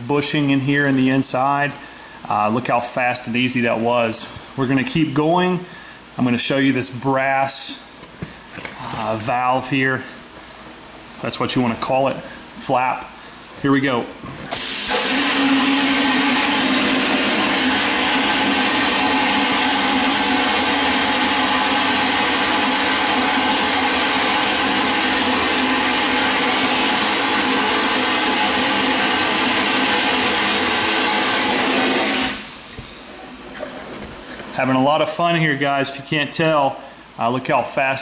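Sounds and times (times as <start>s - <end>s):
blasting gun spraying hiss: 14.5s - 33.0s.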